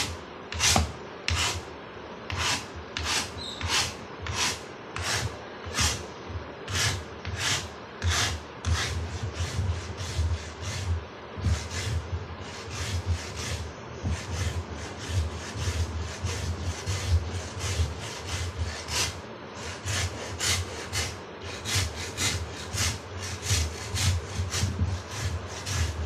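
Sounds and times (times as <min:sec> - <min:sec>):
file rasping on wood: 0:06.7 - 0:26.0.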